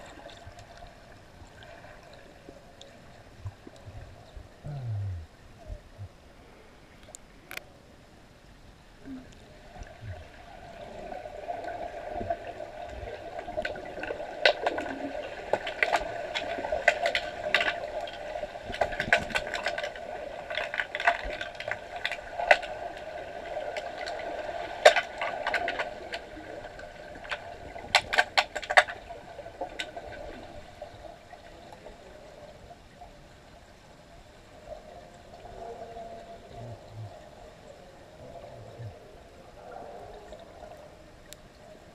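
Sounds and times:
underwater water murmur: 0:09.0 - 0:33.6, 0:34.3 - 0:41.9
sticks and puck clacking underwater: 0:13.4 - 0:30.4.

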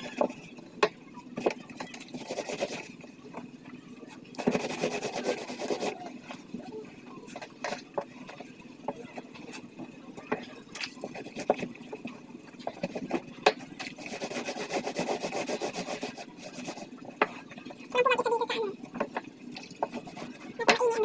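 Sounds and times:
wet clothes scrubbed by hand: 0:13.8 - 0:16.9.

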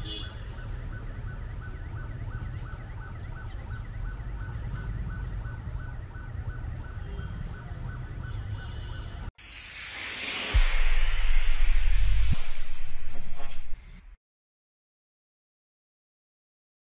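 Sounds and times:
low traffic rumble: 0:00.0 - 0:09.3.

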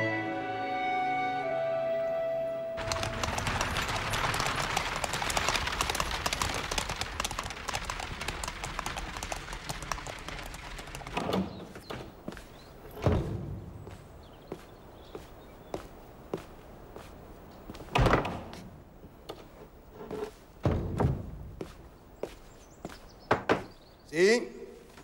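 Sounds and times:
carriage wheels rattling: 0:02.8 - 0:11.6
hooves clip-clopping on cobblestones: 0:02.8 - 0:13.2
thuds: 0:12.9 - 0:13.9, 0:20.6 - 0:21.6.

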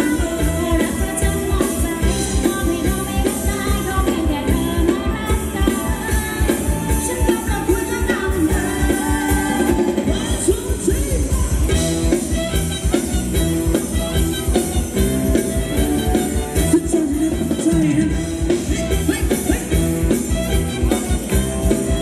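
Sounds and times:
person singing: 0:00.0 - 0:12.5, 0:16.1 - 0:21.0
fast drum beat: 0:00.0 - 0:22.0
live band playing dance music: 0:00.0 - 0:22.0.

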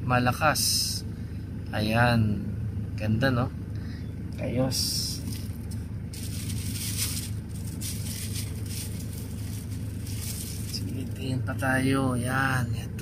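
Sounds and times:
car cabin hum: 0:00.7 - 0:13.0
plastic bags crinkling: 0:05.2 - 0:10.9.

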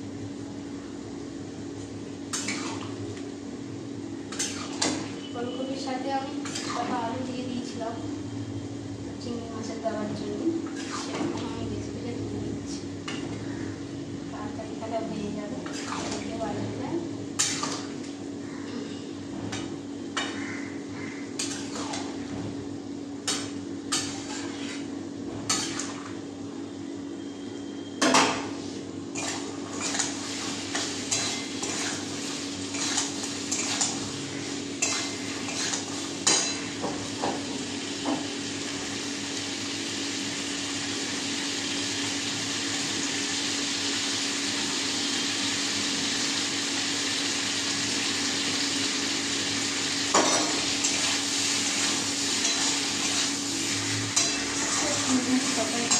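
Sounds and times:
spatula scraping wok: 0:06.3 - 0:07.0, 0:10.7 - 0:11.2, 0:15.6 - 0:16.2, 0:21.4 - 0:22.3, 0:23.3 - 0:24.9, 0:25.5 - 0:26.1, 0:28.6 - 0:36.8, 0:50.6 - 0:55.9.

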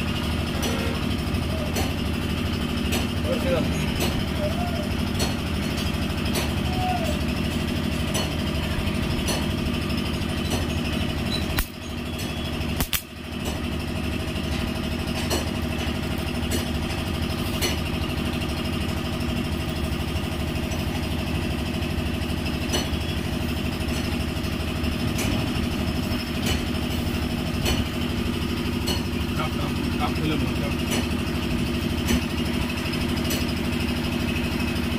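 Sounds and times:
engine running: 0:00.0 - 0:34.9.

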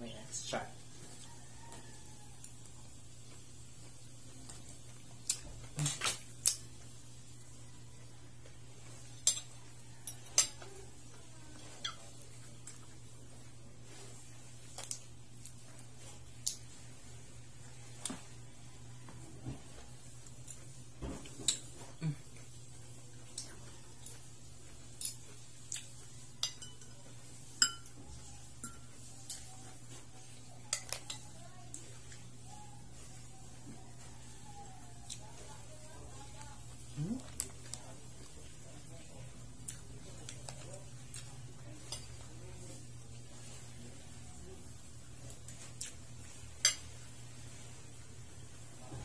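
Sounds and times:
cutlery clinking on a plate: 0:26.4 - 0:27.0, 0:27.6 - 0:28.0, 0:41.8 - 0:42.3, 0:46.6 - 0:47.0.

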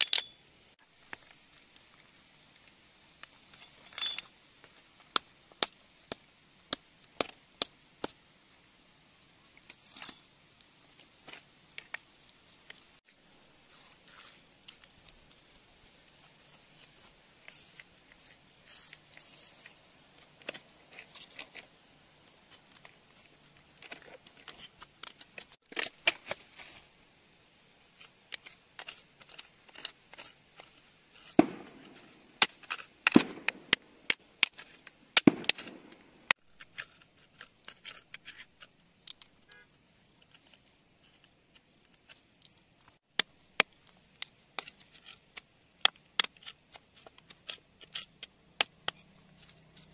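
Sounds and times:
pick scraping through wet gravel: 0:16.1 - 0:21.8
pick clicking against pebbles: 0:40.1 - 0:49.9.

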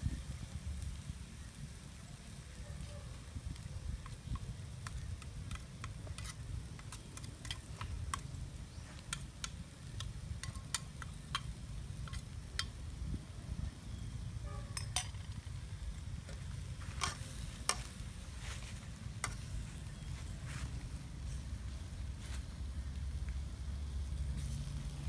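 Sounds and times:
light sizzle of frying: 0:00.0 - 0:25.0
low steady rumble: 0:03.4 - 0:25.0
metal utensils scraping a wok: 0:05.5 - 0:09.4, 0:16.8 - 0:18.0.

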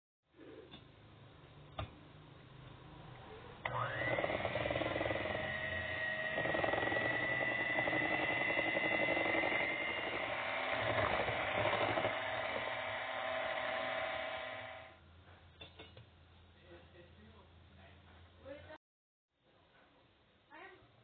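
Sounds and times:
electric hand mixer whining: 0:03.6 - 0:15.0.

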